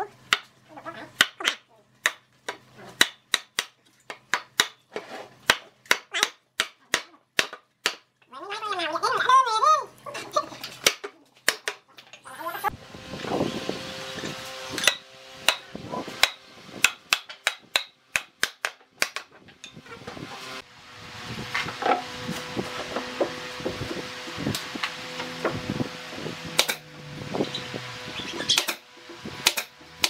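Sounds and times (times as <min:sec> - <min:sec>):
steady hum: 0:12.3 - 0:18.4.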